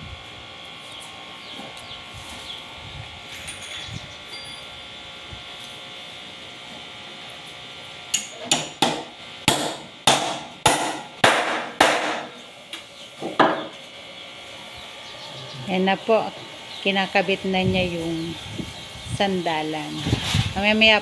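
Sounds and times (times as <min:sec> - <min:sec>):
hammer striking nails: 0:08.2 - 0:12.3.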